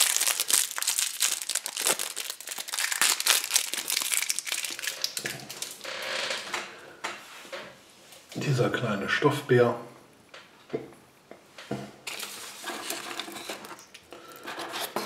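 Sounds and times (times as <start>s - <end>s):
plastic wrapper crinkling: 0.0s - 5.9s, 12.1s - 14.1s.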